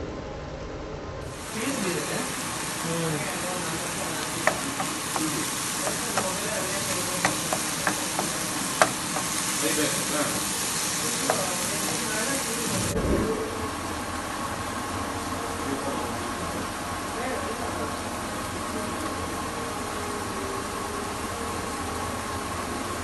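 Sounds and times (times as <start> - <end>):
food sizzling in a frying pan: 1.2 - 13.0, 13.6 - 23.0
spatula tapping and scraping pan: 4.4 - 9.6.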